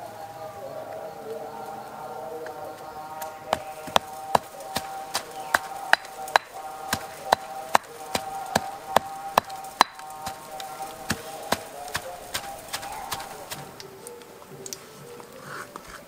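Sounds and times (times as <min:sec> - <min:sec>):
stone pestle pounding in mortar: 0:03.6 - 0:13.6.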